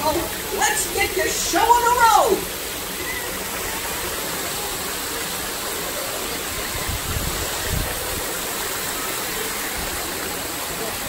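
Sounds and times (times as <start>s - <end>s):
fountain water splashing: 0.0s - 11.0s.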